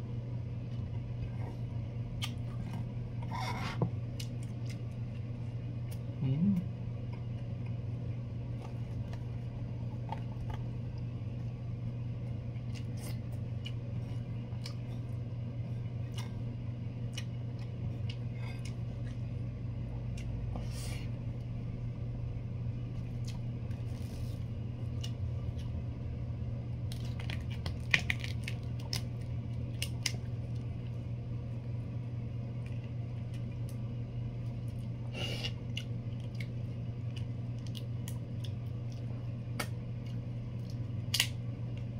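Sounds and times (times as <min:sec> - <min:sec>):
steady low hum: 0:00.0 - 0:41.9
small clicks and crunches: 0:26.9 - 0:30.7.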